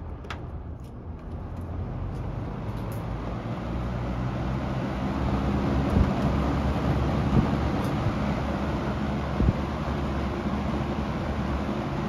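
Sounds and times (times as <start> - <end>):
box fan air rush and motor hum: 0.0 - 12.0.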